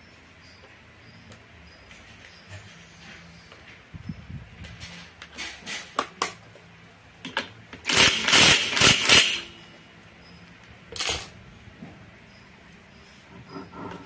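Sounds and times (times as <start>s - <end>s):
impact wrench hammering: 7.9s - 9.5s.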